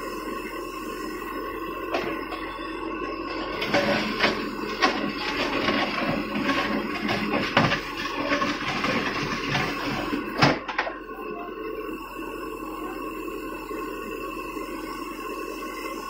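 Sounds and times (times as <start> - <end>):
diesel engine running: 0.0 - 16.0
bucket scraping and knocking on rock: 3.6 - 10.6.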